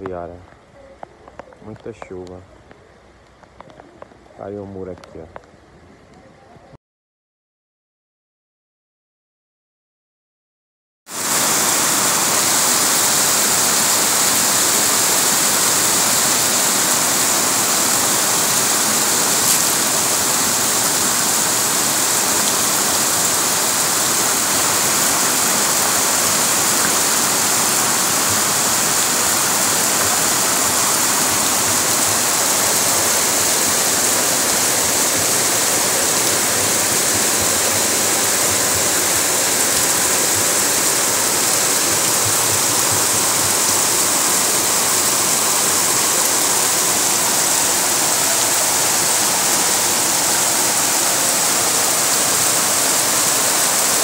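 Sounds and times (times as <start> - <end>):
floodwater rushing and splashing: 11.1 - 54.0
heavy rain: 11.1 - 54.0.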